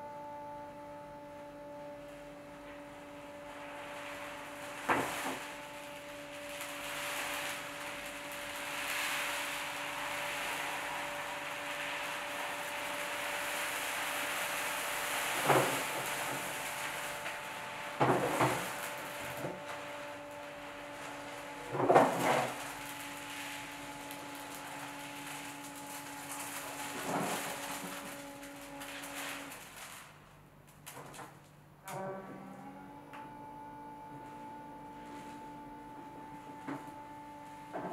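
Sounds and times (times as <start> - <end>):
rushing hiss of turning drum: 3.9 - 28.2.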